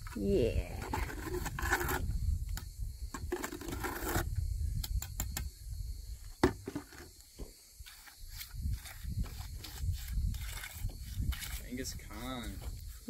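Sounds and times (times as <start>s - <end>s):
trowel scraping metal bucket: 0.8s - 2.1s, 3.2s - 4.3s.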